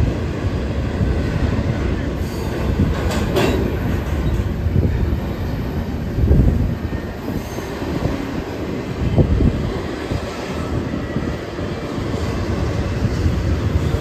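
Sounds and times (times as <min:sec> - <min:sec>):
freight train rumbling past: 0:00.0 - 0:14.0
train knock: 0:02.6 - 0:04.6.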